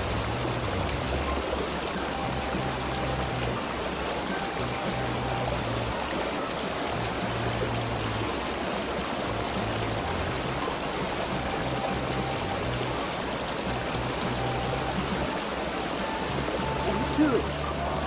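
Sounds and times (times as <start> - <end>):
background music with bass line: 0.0 - 1.5, 2.1 - 6.2, 6.8 - 18.0
water rushing over rocks: 0.0 - 18.0.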